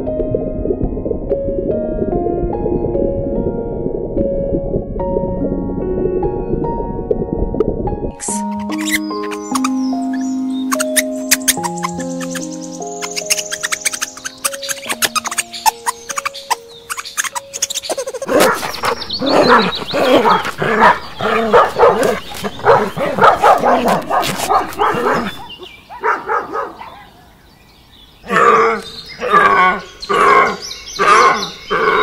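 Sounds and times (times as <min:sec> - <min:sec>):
dogs barking loudly: 0:18.3 - 0:27.3.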